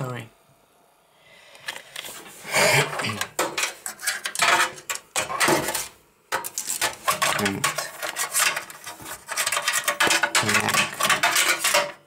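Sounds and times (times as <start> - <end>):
computer parts knocking and clicking: 2.9 - 12.0.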